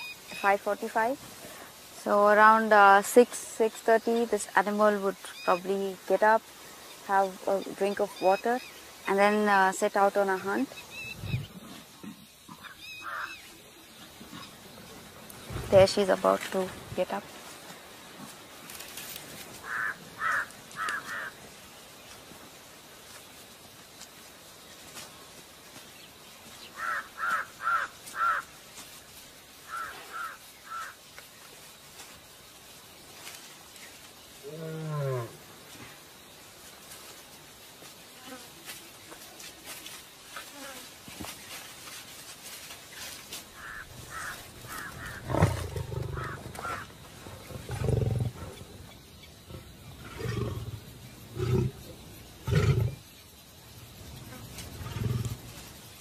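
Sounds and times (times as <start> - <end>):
crow cawing: 13.0 - 13.4, 19.6 - 21.4, 26.8 - 28.5, 29.7 - 31.0, 43.6 - 45.2, 46.2 - 46.9
lion roaring: 45.0 - 48.8, 49.5 - 53.0.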